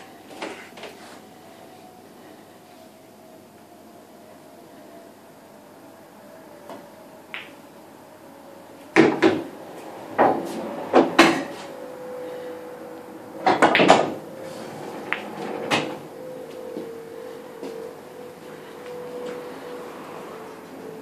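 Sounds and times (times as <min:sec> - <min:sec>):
pool balls clacking: 0:09.0 - 0:09.5, 0:13.4 - 0:14.2, 0:15.0 - 0:16.0.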